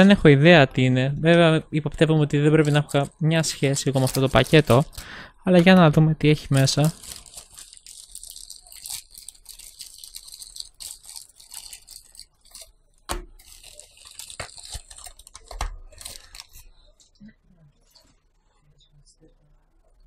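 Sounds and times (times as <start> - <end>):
plastic bag crinkling and tearing: 2.6 - 5.2, 6.3 - 16.8.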